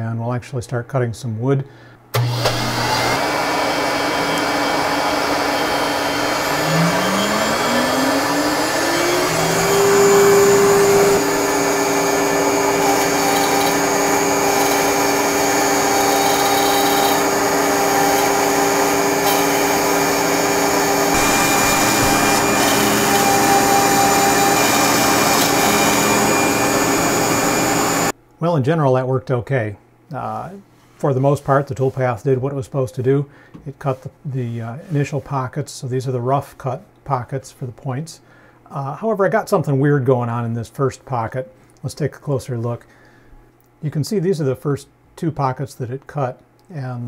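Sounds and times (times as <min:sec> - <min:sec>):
router spindle whining: 0:02.2 - 0:28.1.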